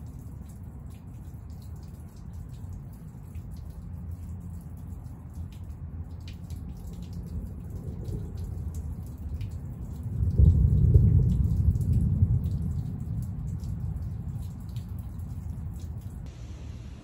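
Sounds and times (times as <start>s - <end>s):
raindrops dripping: 0.0s - 16.4s
thunder rumbling: 7.6s - 8.8s, 10.1s - 15.4s.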